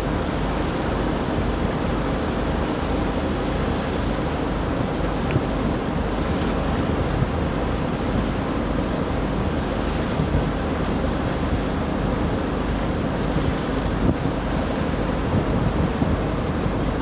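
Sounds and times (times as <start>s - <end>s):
wind on microphone: 12.9s - 17.0s.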